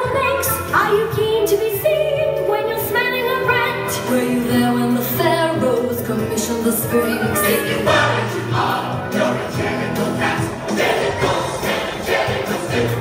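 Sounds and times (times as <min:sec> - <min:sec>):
woman singing over dance music: 0:00.0 - 0:08.3.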